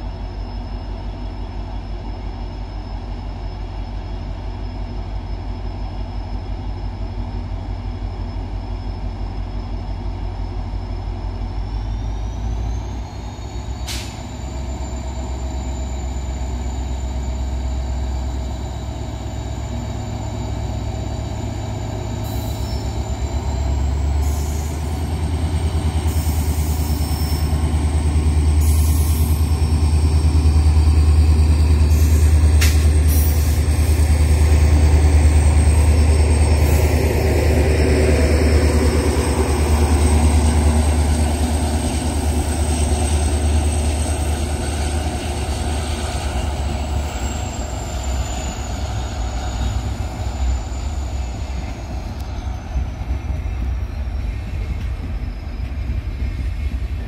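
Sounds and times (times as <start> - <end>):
diesel locomotive engine throbbing: 0.0 - 57.0.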